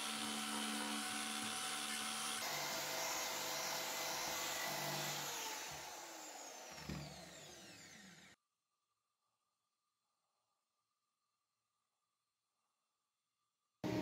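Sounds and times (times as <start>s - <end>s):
electric drill whining: 0.0s - 8.4s.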